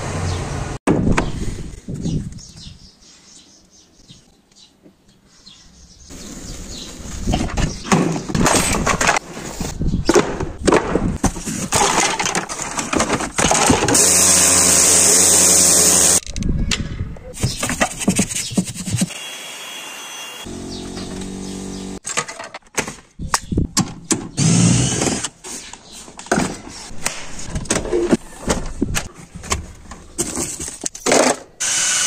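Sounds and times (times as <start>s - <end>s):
knocks and scraping: 6.3s - 14.3s, 16.0s - 19.1s, 20.5s - 31.5s
pressure washer jetting water: 14.0s - 16.2s
cordless tool motor whining: 19.2s - 22.0s.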